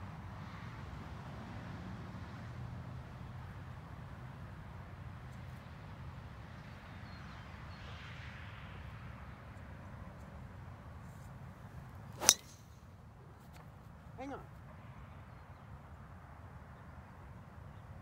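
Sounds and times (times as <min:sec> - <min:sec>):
golf ball struck by driver: 0:12.2 - 0:12.7.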